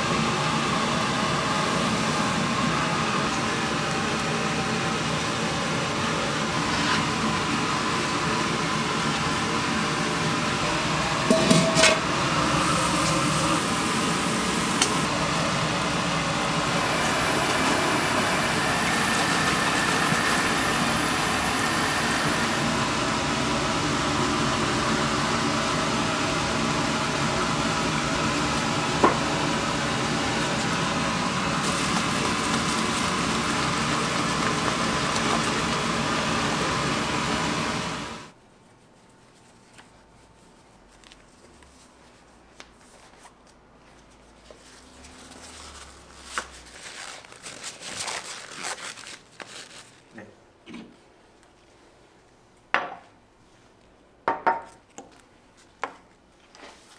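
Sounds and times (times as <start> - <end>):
syrup boiling hard: 16.6 - 22.7, 31.4 - 38.3.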